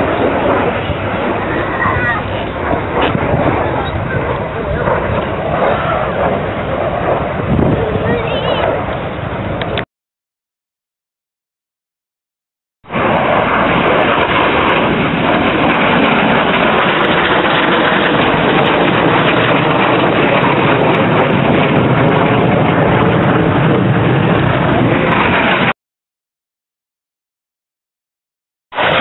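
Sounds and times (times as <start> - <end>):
jet fighter flying past: 0.0 - 9.8, 12.9 - 25.8, 28.7 - 29.0.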